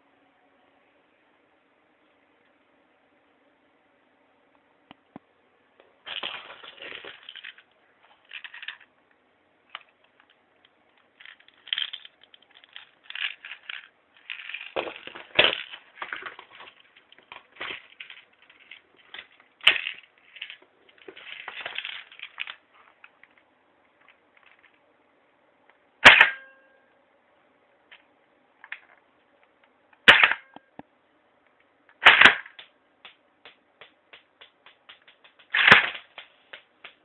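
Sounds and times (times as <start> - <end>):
gun handling clicks and rattles: 6.1 - 7.6, 8.2 - 8.9, 9.7 - 23.4, 34.4 - 37.0.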